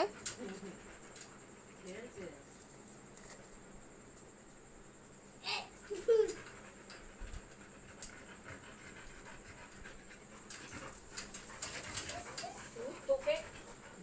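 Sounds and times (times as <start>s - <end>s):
dogs panting: 0.0s - 2.1s, 5.7s - 14.0s
dog whining: 11.7s - 13.4s.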